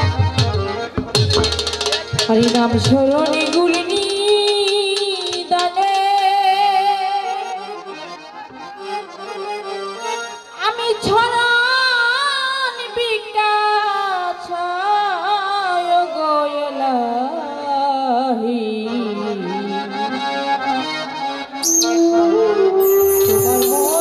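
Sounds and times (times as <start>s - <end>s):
instrumental accompaniment: 0.0s - 13.4s, 19.0s - 24.0s
woman singing folk song: 2.3s - 7.6s, 10.6s - 20.1s.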